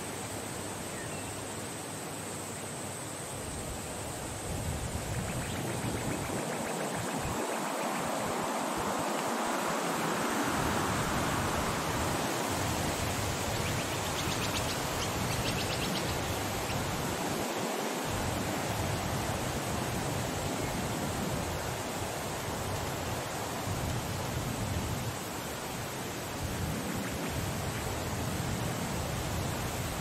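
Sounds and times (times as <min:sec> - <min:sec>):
steady rushing noise: 0:04.3 - 0:20.1.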